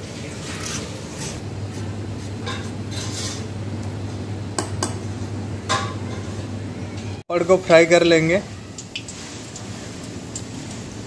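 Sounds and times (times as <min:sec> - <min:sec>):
steady low hum: 0:00.0 - 0:07.2
knife scraping potato: 0:00.4 - 0:03.5.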